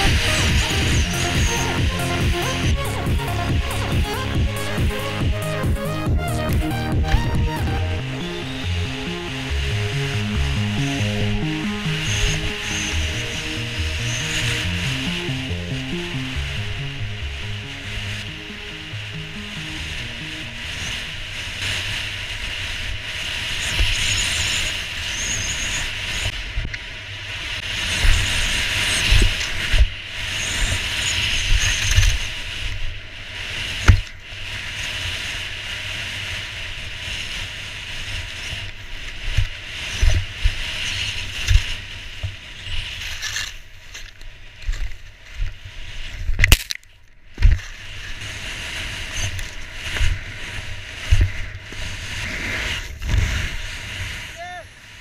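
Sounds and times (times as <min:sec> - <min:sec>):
skis scraping over snow: 0:20.6 - 0:46.4, 0:47.3 - 0:55.0.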